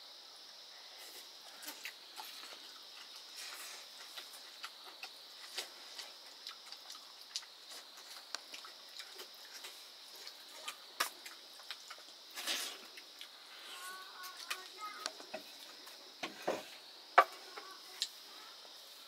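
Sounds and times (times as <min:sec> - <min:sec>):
crickets droning: 0:00.0 - 0:19.0
eating clicks and smacks: 0:04.0 - 0:12.2.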